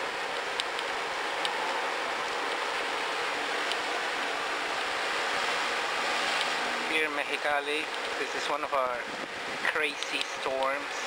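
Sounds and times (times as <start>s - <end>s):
rain hissing: 0.0s - 11.0s
faint rain ticks: 0.3s - 5.0s, 6.3s - 8.8s, 9.6s - 10.9s.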